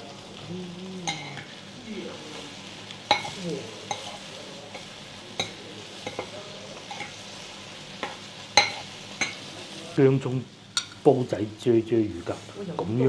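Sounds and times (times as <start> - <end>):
clay pot sizzling: 0.0 - 13.0
metal spoon clinking on pot: 3.1 - 4.2, 8.0 - 9.4.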